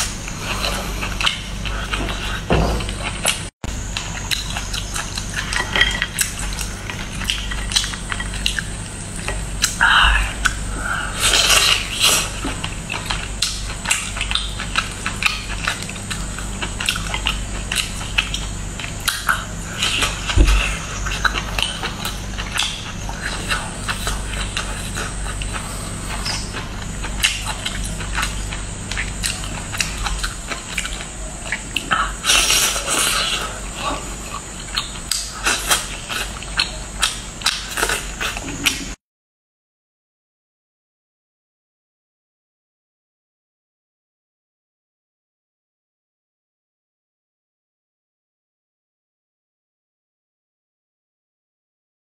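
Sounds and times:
steady low hum: 0.0s - 39.0s
chewing close to microphone: 11.2s - 39.0s.

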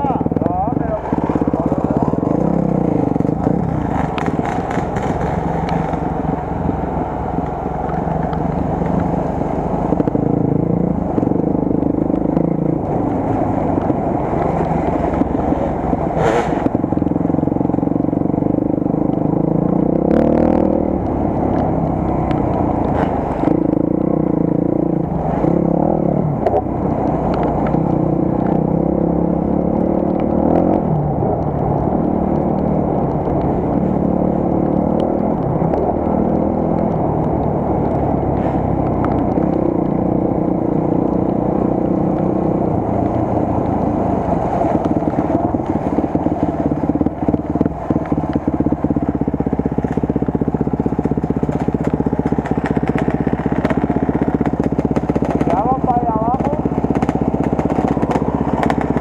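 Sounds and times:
motorcycle engine revving: 0.0s - 59.0s
knocks and scrapes: 12.4s - 16.8s.

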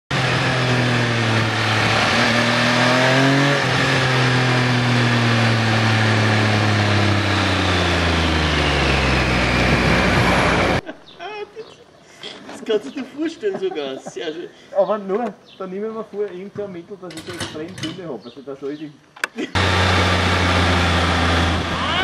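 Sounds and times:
motorcycle engine revving: 0.1s - 10.8s, 19.5s - 22.0s
wind rush: 9.4s - 10.8s.

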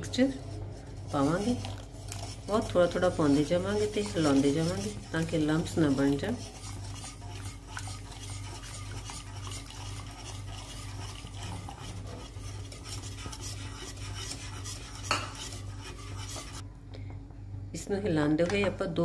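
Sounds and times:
whisk scraping metal saucepan: 0.1s - 16.6s.

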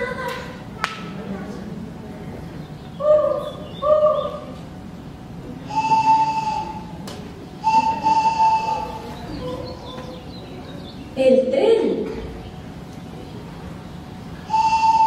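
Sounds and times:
whistle notes: 5.7s - 6.9s, 7.6s - 9.4s, 14.5s - 15.0s.

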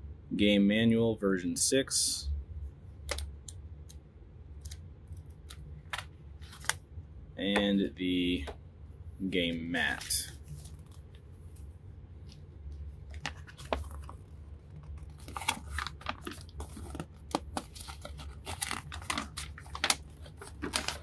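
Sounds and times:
stiff paper crackling and rustling: 9.9s - 21.0s.

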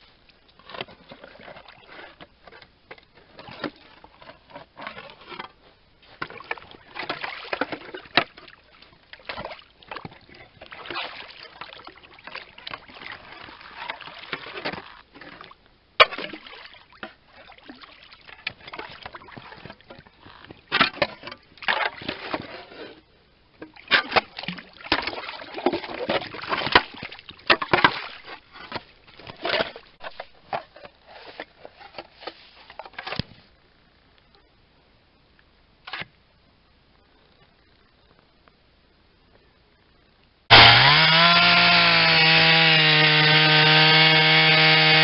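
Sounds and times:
slushy water sloshing: 6.2s - 23.0s, 23.7s - 32.8s.

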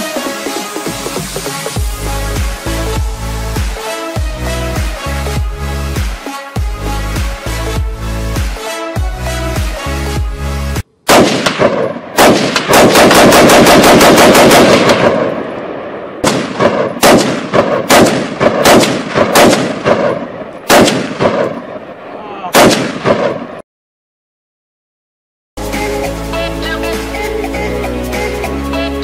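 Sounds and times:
rifle gunshots: 11.1s - 21.9s, 22.5s - 23.6s.

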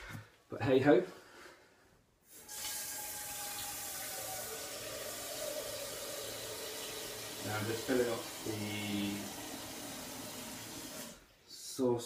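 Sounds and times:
tap water filling a saucepan: 2.4s - 11.2s.

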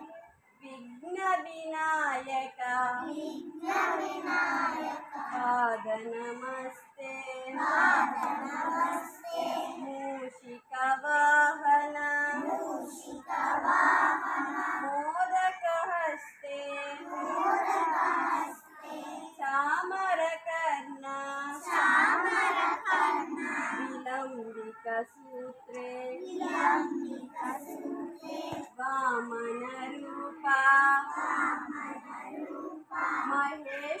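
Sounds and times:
children singing a prayer: 3.0s - 5.7s, 7.5s - 10.0s, 12.2s - 15.5s, 16.2s - 19.4s, 21.2s - 34.0s.

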